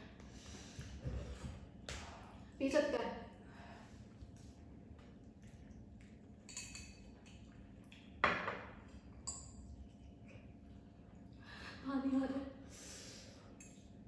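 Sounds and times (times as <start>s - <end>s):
cutlery clinking on glass bowls: 6.5s - 7.2s, 8.2s - 9.7s.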